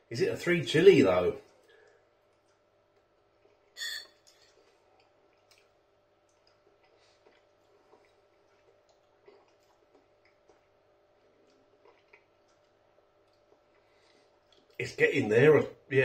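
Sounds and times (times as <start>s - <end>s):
wet mouth clicks and lip smacks: 4.2s - 10.8s, 11.4s - 13.8s, 14.4s - 14.8s.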